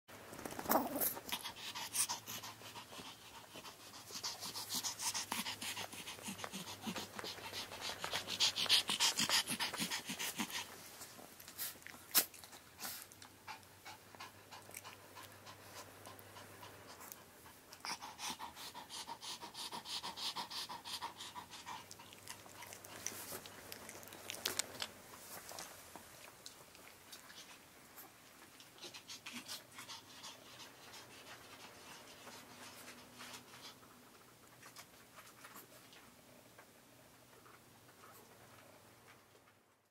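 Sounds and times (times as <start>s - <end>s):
dog panting: 1.1s - 36.0s.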